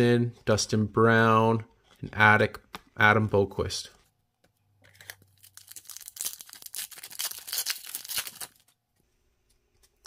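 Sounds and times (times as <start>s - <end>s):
card pack wrapper tearing: 4.9s - 8.7s.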